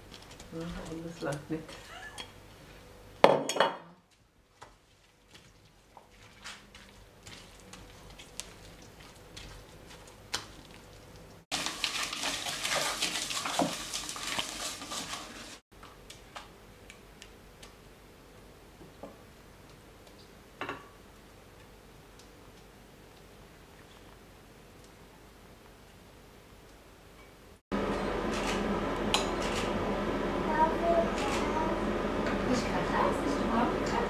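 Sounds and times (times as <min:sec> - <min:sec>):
spatula scraping mash in pot: 0:11.5 - 0:15.6.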